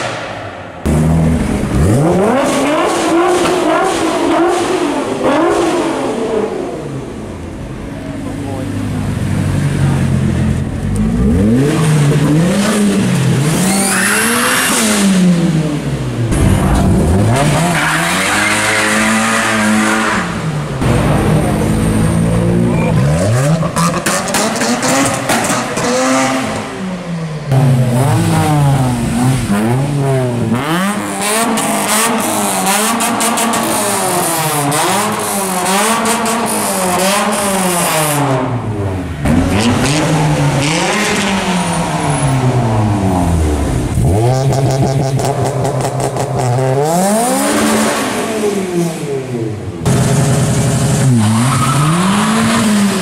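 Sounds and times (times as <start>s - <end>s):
car engines revving: 0.0s - 53.0s.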